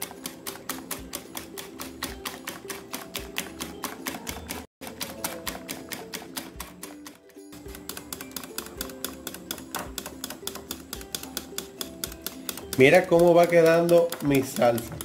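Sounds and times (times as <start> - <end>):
wire whisk clicking against glass: 7.7 - 15.0.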